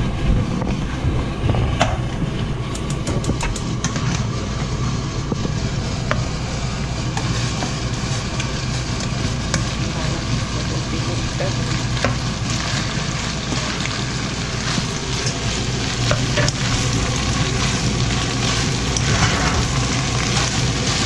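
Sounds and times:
food sizzling in a frying pan: 0:00.0 - 0:21.0
steady low hum: 0:00.0 - 0:21.0
spatula scraping a pan: 0:18.4 - 0:21.0.

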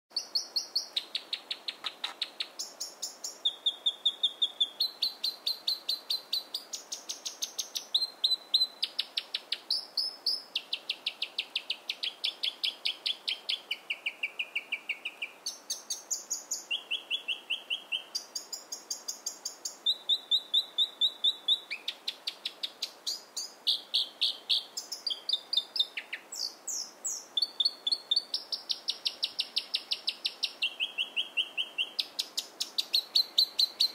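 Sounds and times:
robin singing: 0:00.1 - 0:33.9.

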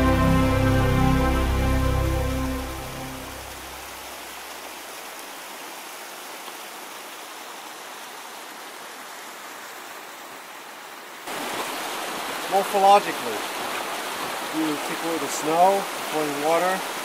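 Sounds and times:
instrumental music: 0:00.0 - 0:04.0
stream water rushing: 0:00.0 - 0:17.0.

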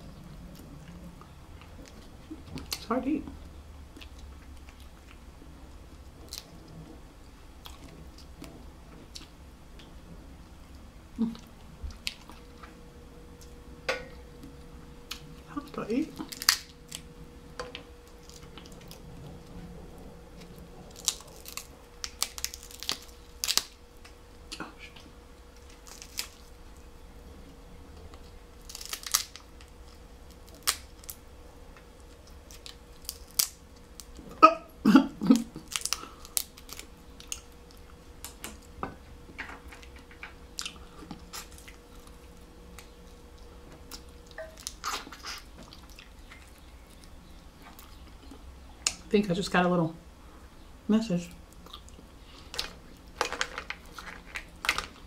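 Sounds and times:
crab shell cracking: 0:16.1 - 0:19.0, 0:20.4 - 0:24.6, 0:25.6 - 0:26.6, 0:28.1 - 0:31.2, 0:31.8 - 0:34.2, 0:35.3 - 0:38.7, 0:51.5 - 0:55.0
chewing: 0:39.8 - 0:49.0, 0:51.5 - 0:53.2.

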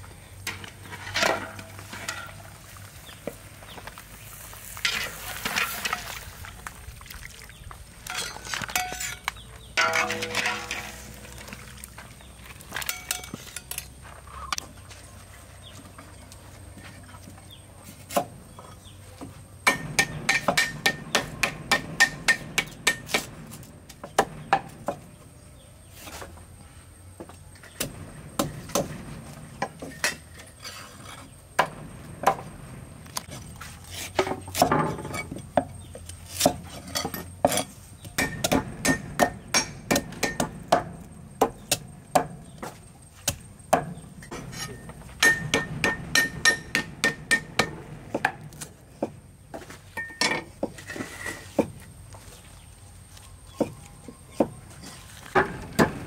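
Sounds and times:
cleavers chopping on wooden blocks: 0:19.6 - 0:25.2, 0:34.0 - 0:44.4, 0:45.1 - 0:49.7, 0:55.3 - 0:56.0.

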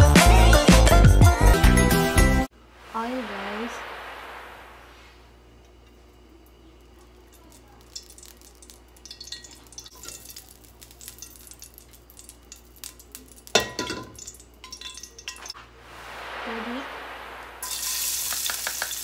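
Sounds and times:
oil crackling and spitting: 0:07.0 - 0:13.6, 0:17.5 - 0:19.0.

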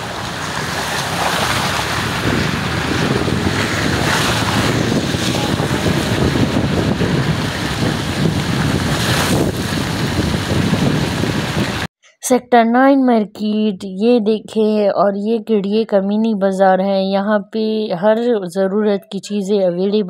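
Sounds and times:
car tyres hissing through water: 0:00.0 - 0:11.9
heavy rain: 0:00.0 - 0:11.9
wind on microphone: 0:00.0 - 0:11.9.

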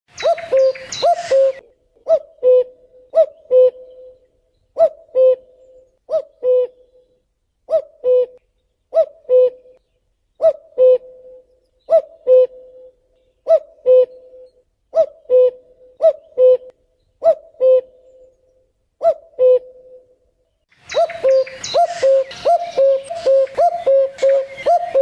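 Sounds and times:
cuckoo calling: 0:00.1 - 0:25.0.

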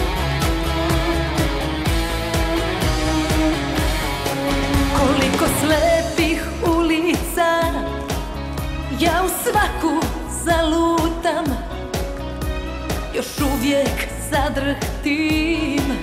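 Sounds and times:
band playing: 0:00.0 - 0:14.0
woman singing into a microphone: 0:04.8 - 0:12.0, 0:13.0 - 0:16.0.

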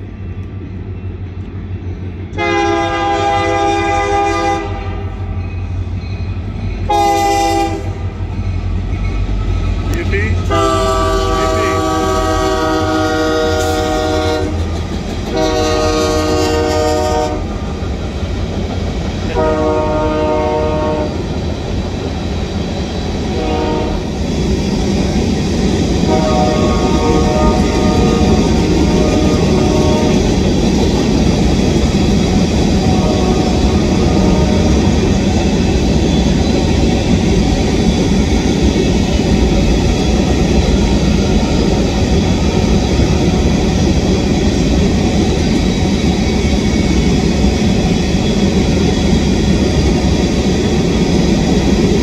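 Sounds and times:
locomotive air horn blasts: 0:02.4 - 0:05.1, 0:06.9 - 0:08.1, 0:10.5 - 0:14.6, 0:15.3 - 0:17.5, 0:19.3 - 0:21.2, 0:23.3 - 0:24.0, 0:26.1 - 0:30.2, 0:32.9 - 0:34.8.

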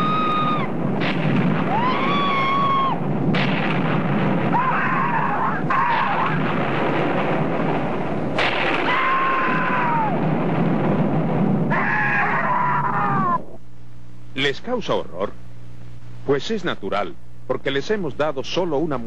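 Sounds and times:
people screaming: 0:00.0 - 0:00.8, 0:01.6 - 0:03.0, 0:04.5 - 0:06.4, 0:08.7 - 0:10.3, 0:11.7 - 0:13.6
heavy ground rumbling: 0:00.0 - 0:13.5.

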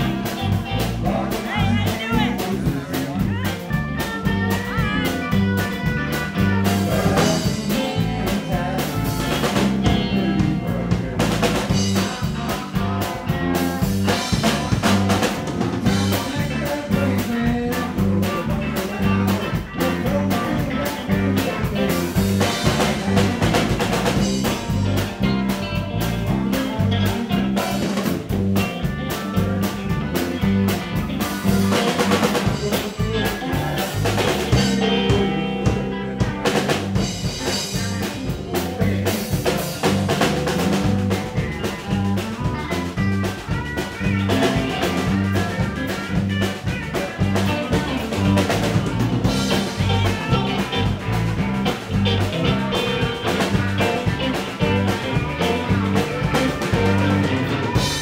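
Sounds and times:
bass guitar: 0:00.0 - 0:58.0
drum kit steady beat: 0:00.0 - 0:58.0
electric guitars: 0:00.0 - 0:58.0.

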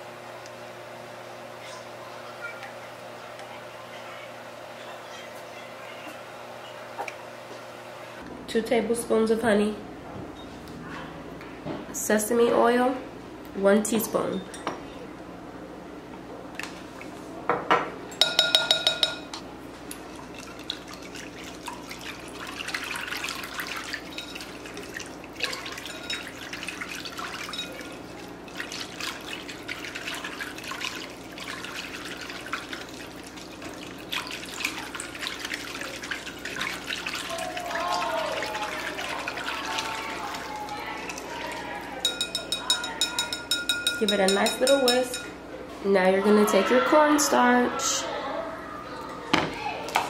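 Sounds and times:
spoon clinking on glass bowl: 0:18.2 - 0:19.4, 0:24.1 - 0:24.5, 0:25.8 - 0:26.4, 0:27.4 - 0:27.8, 0:42.0 - 0:45.4
whisk swishing sauce in bowl: 0:19.9 - 0:45.3.

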